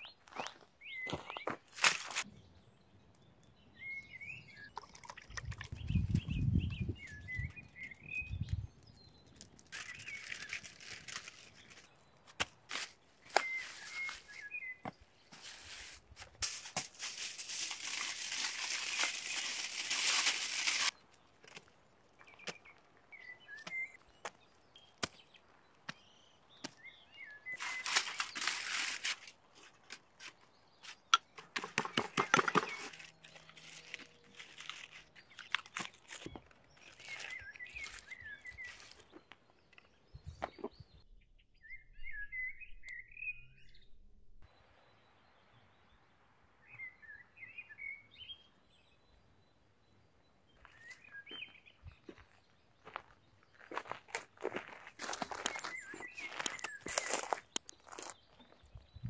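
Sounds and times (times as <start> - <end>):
small birds chirping: 0.0 - 59.0
aluminium foil crinkling: 9.5 - 12.0, 15.6 - 21.0, 27.6 - 29.4, 32.6 - 39.1
spoon scraping in foil: 15.4 - 20.9, 27.6 - 29.4, 32.6 - 36.2.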